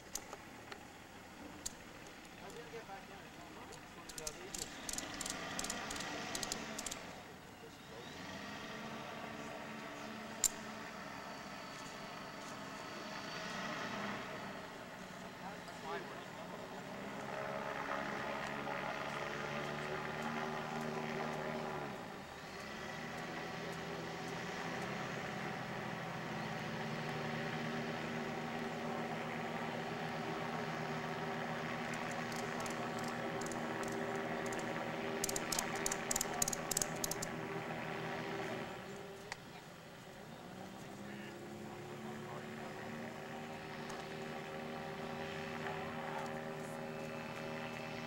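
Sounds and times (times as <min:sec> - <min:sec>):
sharp clicks: 0:00.0 - 0:00.8, 0:03.7 - 0:07.1, 0:10.4 - 0:10.6, 0:31.9 - 0:37.3
aircraft engines droning overhead: 0:00.0 - 0:48.0.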